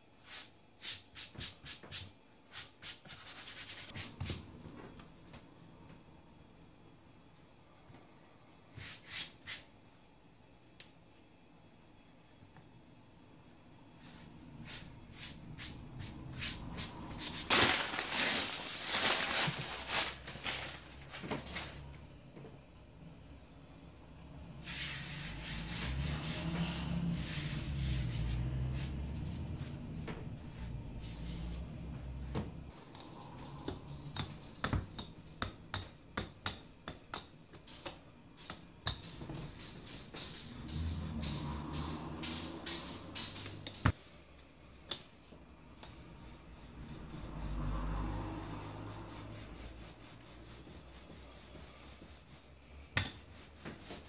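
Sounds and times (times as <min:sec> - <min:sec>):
hands rubbing dough on countertop: 0:00.2 - 0:04.6, 0:14.0 - 0:17.5, 0:24.6 - 0:35.6, 0:45.2 - 0:54.0.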